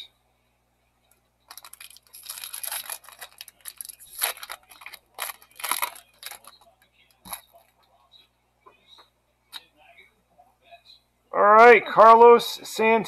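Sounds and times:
foil wrapper crinkling and tearing: 1.5s - 6.7s.

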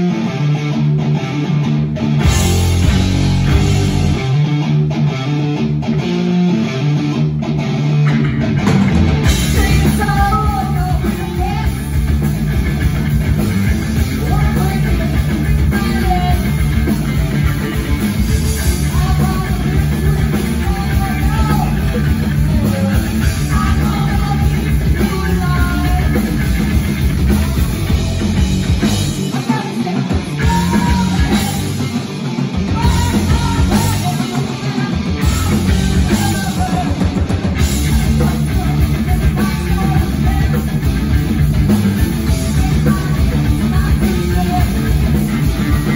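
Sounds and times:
drum kit: 0.0s - 6.2s, 6.9s - 45.9s
bass guitar: 0.0s - 45.9s
distorted electric guitar: 0.0s - 45.9s
female lead singer: 9.2s - 12.2s, 13.8s - 45.9s.

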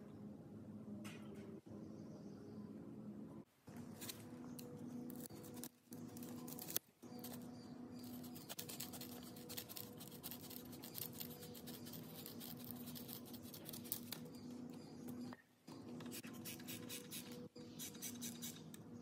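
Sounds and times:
steady low hum: 0.0s - 19.0s
foam strip rustling and clicking: 3.9s - 14.3s.

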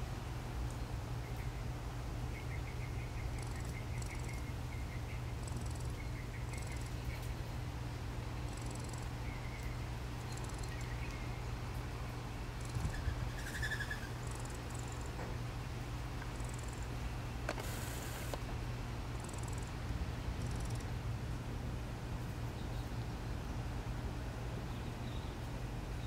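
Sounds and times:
steady low hum: 0.0s - 26.0s
squirrel rattling calls: 3.3s - 4.6s, 5.2s - 7.0s, 8.5s - 11.2s, 12.6s - 15.2s, 16.3s - 17.0s, 19.2s - 19.8s, 20.4s - 20.9s.

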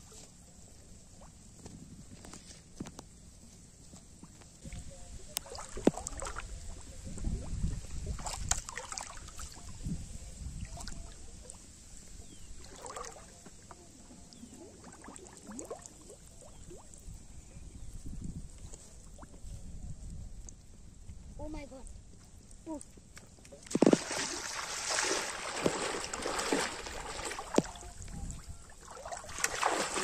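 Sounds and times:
water sloshing and splashing: 4.2s - 9.8s, 12.3s - 17.0s, 23.4s - 30.0s.

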